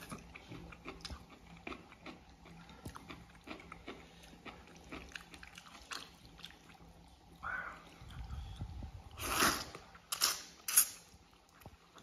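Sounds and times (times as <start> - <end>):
wet chewing: 0.0 - 7.1
slurping noodles: 9.1 - 10.9.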